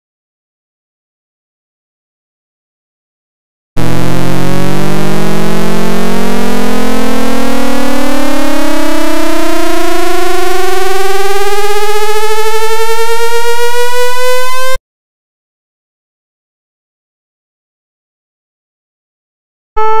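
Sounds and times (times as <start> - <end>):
buzzy synthesizer tone rising: 3.8 - 14.8, 19.8 - 20.0.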